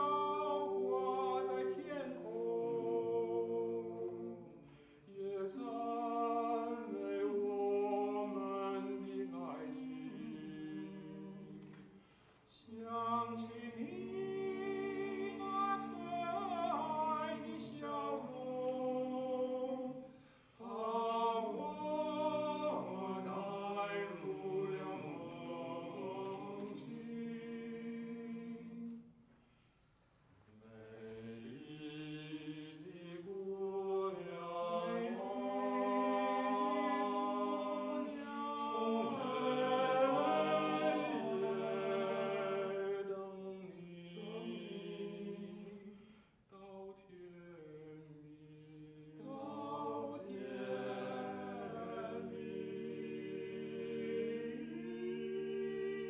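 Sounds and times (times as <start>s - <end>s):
male vocal quartet singing a cappella: 0.0s - 29.1s, 30.6s - 56.0s.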